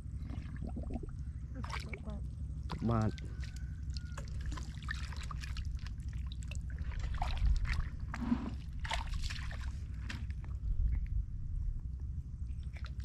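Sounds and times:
muddy water splashing: 0.0s - 10.7s, 12.5s - 13.0s.

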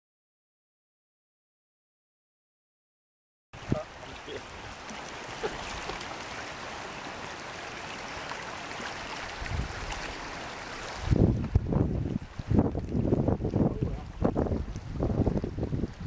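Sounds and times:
small waves lapping on stony shore: 3.6s - 11.3s
wind over lake: 3.6s - 16.0s
wind buffeting microphone: 9.2s - 10.3s, 10.9s - 16.0s.

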